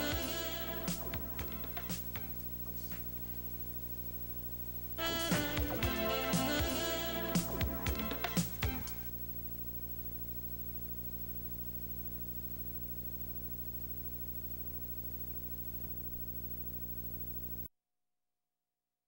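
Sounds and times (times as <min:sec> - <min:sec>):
buzzy electrical hum: 0:00.0 - 0:17.7
faint hiss: 0:00.0 - 0:17.7.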